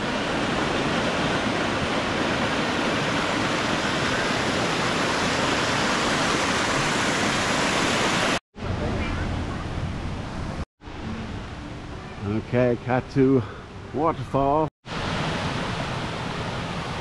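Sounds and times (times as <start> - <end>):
stream water over rocks: 0.0 - 9.0, 14.9 - 17.0.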